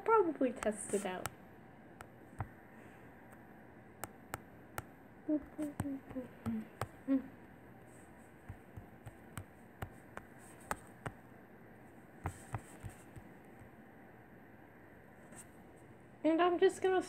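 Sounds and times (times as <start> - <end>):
taps on touchscreen: 2.0 - 2.6, 4.0 - 7.0, 8.4 - 11.2.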